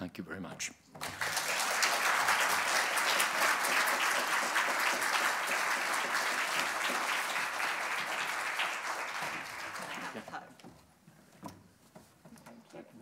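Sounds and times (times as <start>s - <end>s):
audience applauding: 1.0s - 10.5s.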